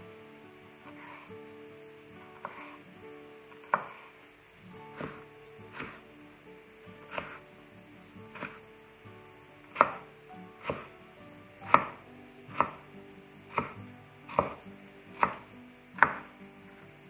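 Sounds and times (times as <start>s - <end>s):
knife chopping on wooden board: 2.4s - 2.8s, 3.6s - 4.1s, 4.9s - 6.0s, 7.1s - 7.4s, 9.7s - 10.9s, 11.6s - 12.8s, 13.5s - 14.6s, 15.2s - 16.3s.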